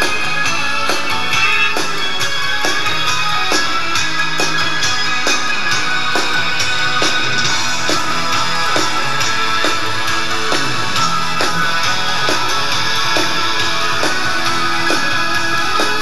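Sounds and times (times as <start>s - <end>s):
electric guitar: 0.0s - 16.0s
rock band playing live: 0.0s - 16.0s.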